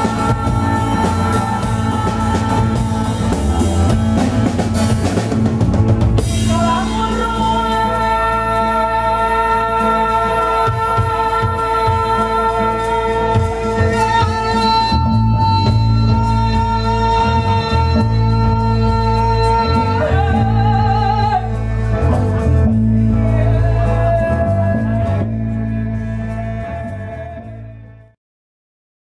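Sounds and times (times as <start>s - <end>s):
women singing long notes: 0.0s - 5.2s, 6.3s - 21.6s
frame drum: 0.0s - 7.7s
drums: 0.0s - 27.8s
acoustic guitar: 0.0s - 28.2s
bass: 0.0s - 28.2s.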